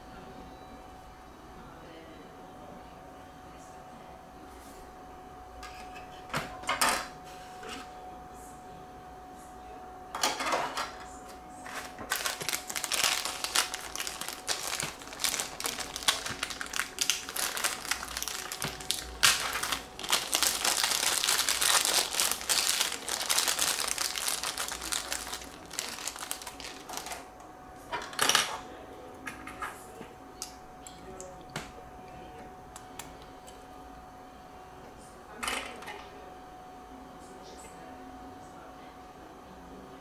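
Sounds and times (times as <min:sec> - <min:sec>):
plastic bag crinkling: 0:11.6 - 0:27.2.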